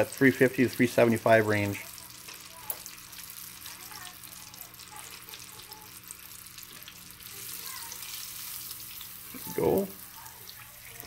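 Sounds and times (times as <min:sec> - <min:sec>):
fish deep-frying in oil: 0:00.0 - 0:11.0.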